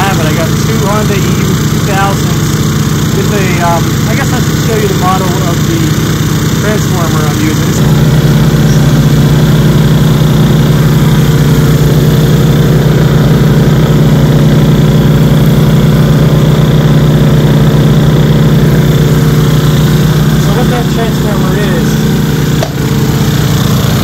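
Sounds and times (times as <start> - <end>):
generators droning: 0.0 - 24.0
transformer electrical hum: 0.0 - 24.0.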